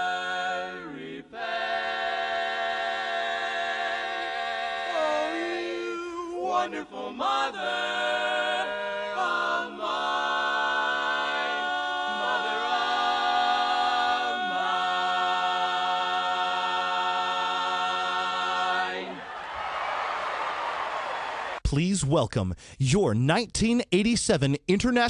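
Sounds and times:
male quartet singing a cappella: 0.0s - 19.2s.

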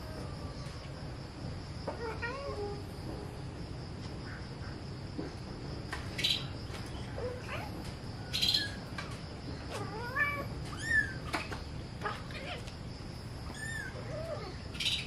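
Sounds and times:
high insect drone: 0.0s - 15.0s
birds chirping: 6.1s - 7.4s.

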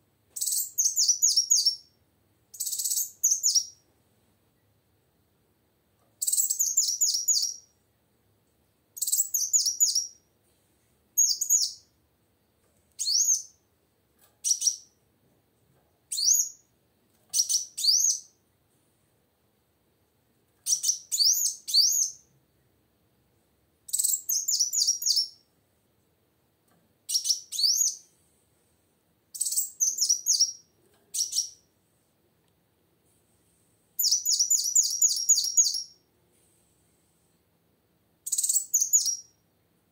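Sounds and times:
bird twittering chirps: 0.4s - 1.9s, 2.5s - 3.8s, 6.2s - 7.7s, 9.0s - 10.2s, 11.2s - 11.8s, 20.6s - 22.2s, 23.9s - 25.4s, 27.1s - 28.0s, 29.4s - 31.6s, 34.0s - 36.0s, 38.3s - 39.3s.

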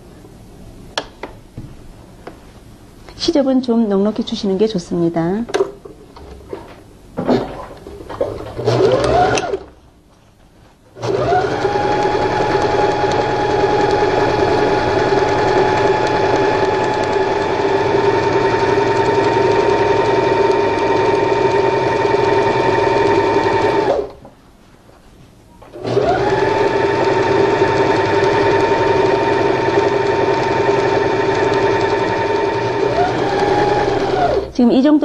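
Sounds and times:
sewing machine stitching: 8.2s - 9.7s, 11.0s - 24.2s, 25.7s - 34.5s.

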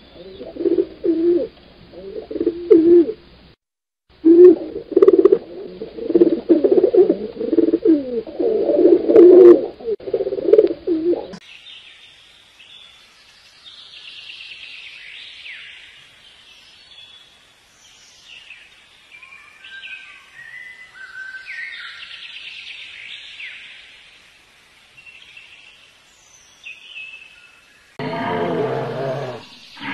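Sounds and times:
pigeon cooing: 0.0s - 3.2s, 4.2s - 11.4s, 28.0s - 29.9s.

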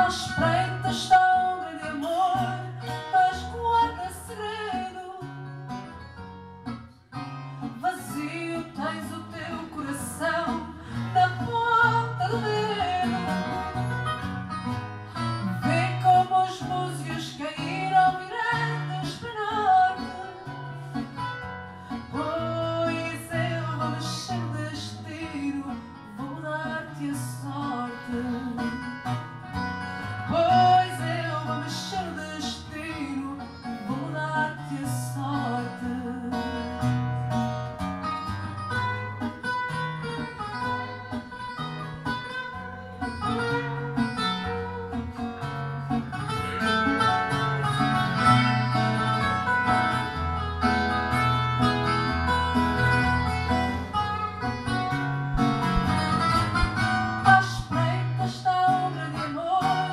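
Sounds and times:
woman singing into microphone: 0.0s - 5.5s, 7.7s - 13.9s, 15.4s - 21.2s, 21.9s - 29.1s, 30.2s - 37.0s, 55.8s - 59.9s
plucked acoustic guitar: 0.0s - 59.9s.

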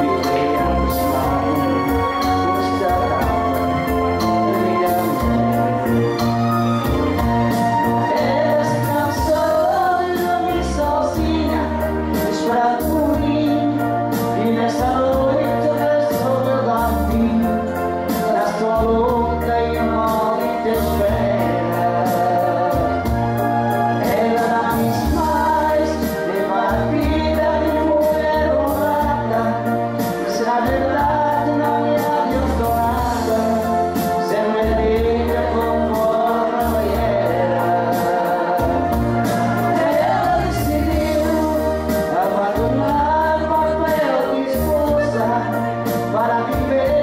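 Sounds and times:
backing track with beat and bass: 0.0s - 47.0s
man and woman singing duet: 0.0s - 47.0s.

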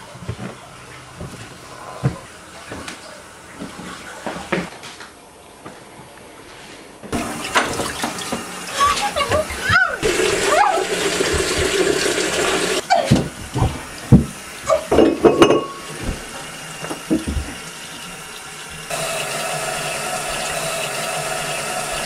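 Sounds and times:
water running: 0.0s - 4.7s, 7.1s - 22.0s
faucet running into sink: 7.2s - 22.0s.

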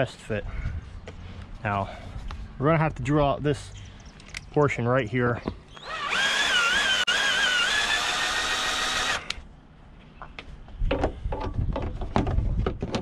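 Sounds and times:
cordless drill boring through plastic: 5.8s - 9.4s.

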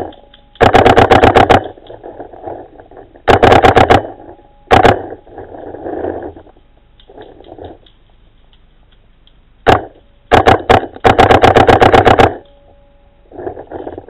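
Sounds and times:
paintball marker firing: 0.0s - 2.6s, 3.3s - 4.1s, 9.7s - 12.5s.

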